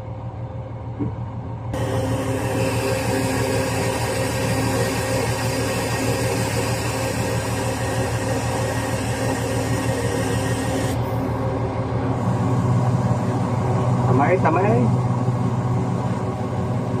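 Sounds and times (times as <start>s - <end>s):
crane diesel engine running: 0.0s - 17.0s.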